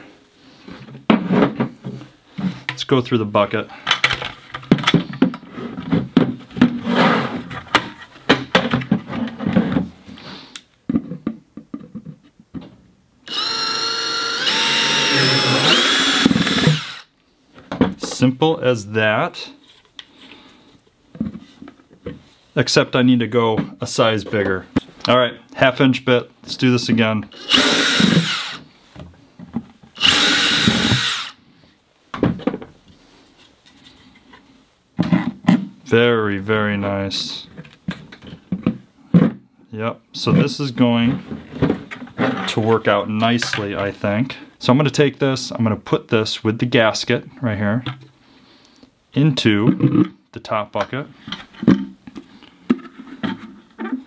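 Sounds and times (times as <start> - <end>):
plastic buckets clattering: 0.8 - 2.7, 3.9 - 10.0
drill whirring through plastic: 13.3 - 17.1, 27.3 - 28.7, 30.0 - 31.4.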